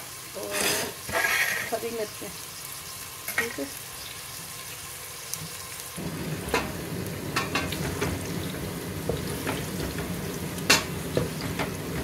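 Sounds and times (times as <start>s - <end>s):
onions sizzling in hot oil: 0.0s - 12.0s
spatula scraping and knocking pot: 9.0s - 12.0s.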